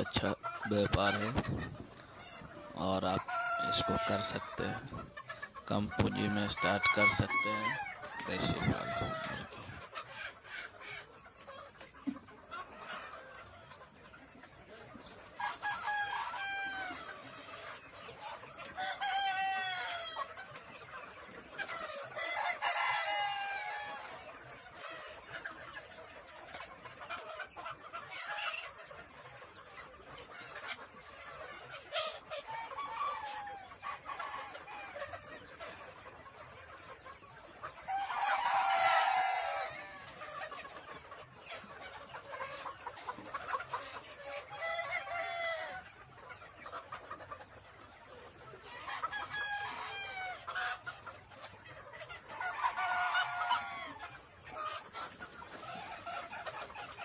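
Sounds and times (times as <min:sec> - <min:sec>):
chickens clucking: 0:00.0 - 0:57.0
roosters crowing: 0:03.3 - 0:04.7, 0:05.7 - 0:09.5, 0:15.4 - 0:17.1, 0:48.9 - 0:50.4.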